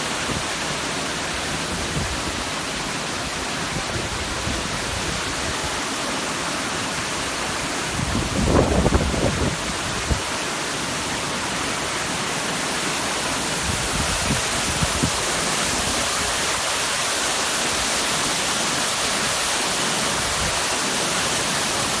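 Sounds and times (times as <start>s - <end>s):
waterfall rushing: 0.0s - 22.0s.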